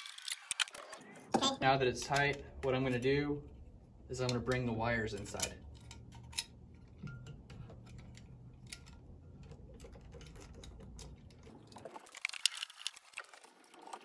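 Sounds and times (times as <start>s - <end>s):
cable rustling and scraping: 2.8s - 14.0s.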